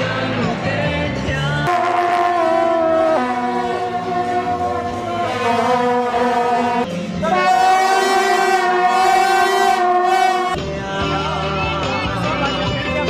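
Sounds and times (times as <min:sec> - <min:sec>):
brass horns blowing long blasts: 0:01.7 - 0:10.6.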